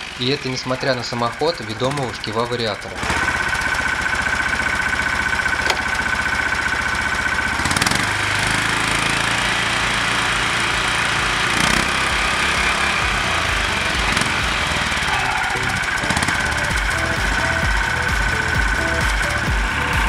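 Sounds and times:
engine running: 0.0 - 20.0
gear whine: 0.0 - 20.0
lever clunk: 5.6 - 5.9.

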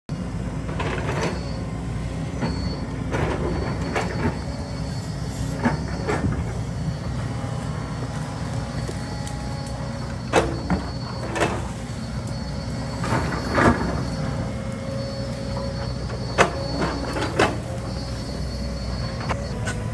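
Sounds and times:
excavator diesel engine running: 0.1 - 19.9
metal clanks and squeals: 0.1 - 19.9.

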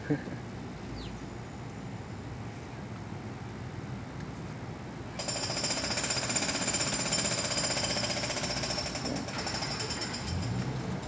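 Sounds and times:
power tool hammering: 5.2 - 10.6.

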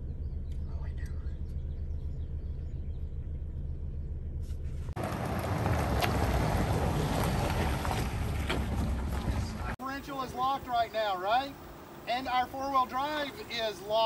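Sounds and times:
car driving by on wet pavement: 5.0 - 9.8.

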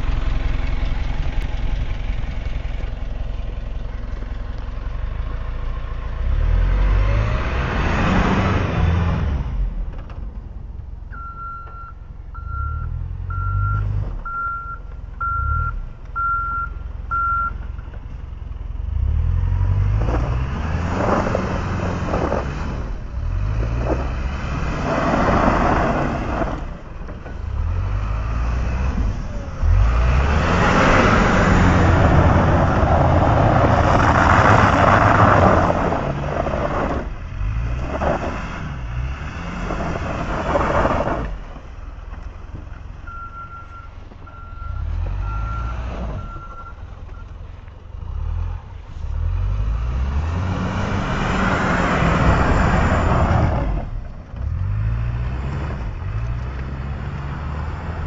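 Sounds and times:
truck engine under load: 0.0 - 58.0
truck reversing alarm beeps: 11.1 - 17.6, 43.0 - 47.4
chained tyres churning through snow: 19.2 - 41.6.

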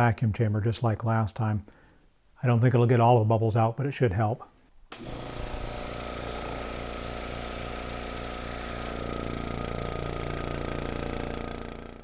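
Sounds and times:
vacuum pump pulsing hum: 5.0 - 12.0.

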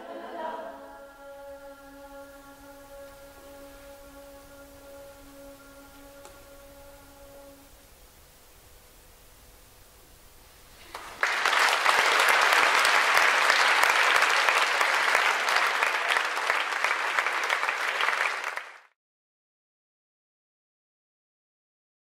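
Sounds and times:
audience applause: 10.8 - 18.9.

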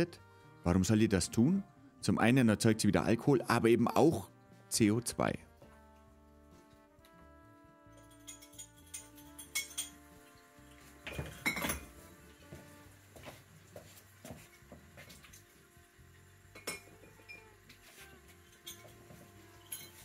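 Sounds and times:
glass bottle clinking: 8.0 - 10.0, 11.0 - 12.0, 16.5 - 17.5, 18.4 - 20.0.

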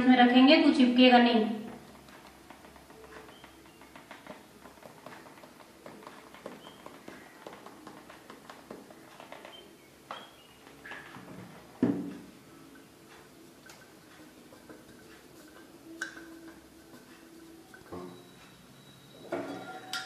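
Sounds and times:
light tapping and rubbing: 1.7 - 11.8.

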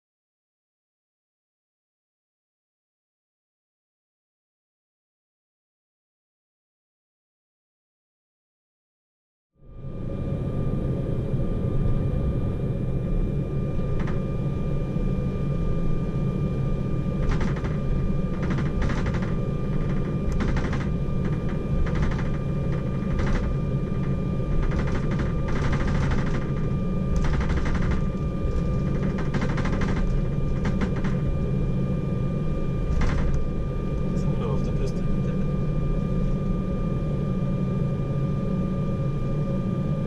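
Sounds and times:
jet cabin low rumble: 9.6 - 40.0
thin steady whine: 9.6 - 40.0
rattling clicks: 17.2 - 23.5, 27.2 - 31.2.

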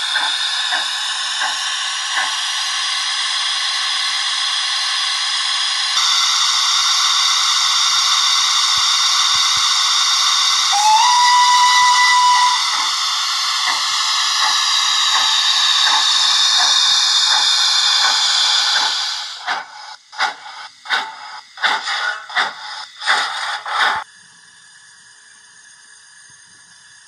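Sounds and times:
steam exhaust chuffs: 0.0 - 24.1
steam hiss from small speaker: 0.0 - 27.0
train whistle: 10.7 - 13.8.

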